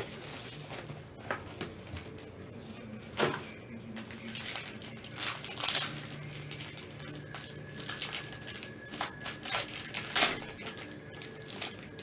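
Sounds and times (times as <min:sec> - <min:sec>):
plastic wrapping crinkling: 0:03.2 - 0:12.0.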